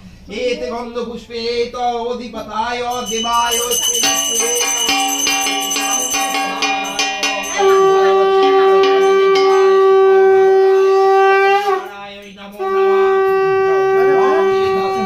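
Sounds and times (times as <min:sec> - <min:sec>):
hand bell ringing: 0:02.9 - 0:10.9
conch shell blasts: 0:03.0 - 0:15.0.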